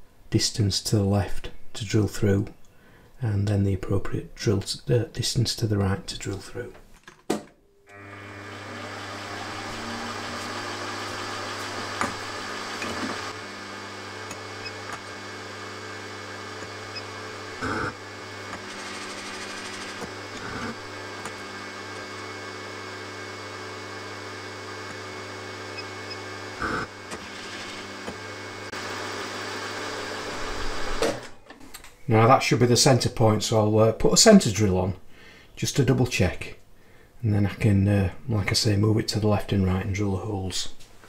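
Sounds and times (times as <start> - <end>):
milling machine motor running: 7.9 - 31.0.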